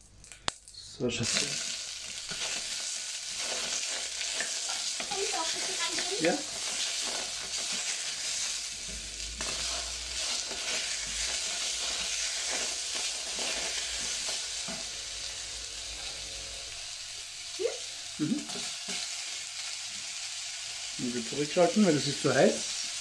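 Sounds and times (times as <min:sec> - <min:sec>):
tomatoes sizzling in a pot: 0:00.0 - 0:23.0
wooden spoon scraping a pot: 0:03.4 - 0:16.8.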